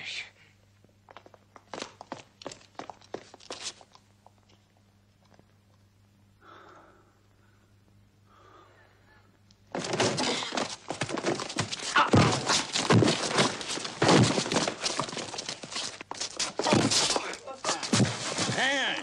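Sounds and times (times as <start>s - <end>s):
heavy thuds: 9.7s - 15.7s
smashing and breaking: 9.7s - 19.0s.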